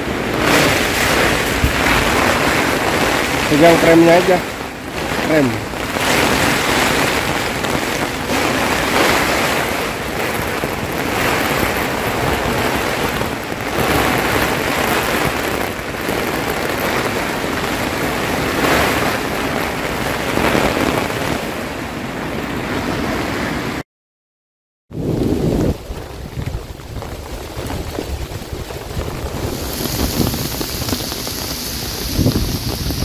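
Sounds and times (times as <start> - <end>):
tent fabric flapping: 0.0 - 23.8, 24.9 - 33.0
wind buffeting tent: 0.0 - 23.8, 24.9 - 33.0.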